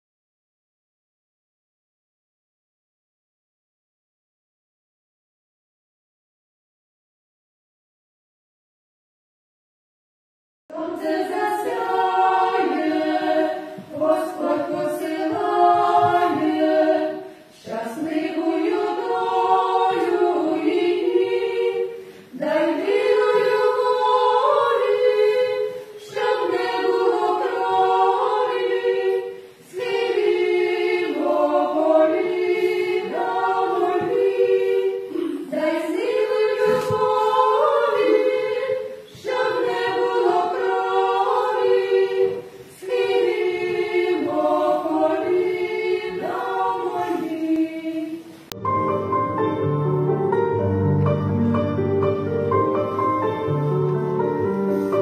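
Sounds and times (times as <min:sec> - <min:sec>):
women singing in harmony: 0:10.7 - 0:48.5.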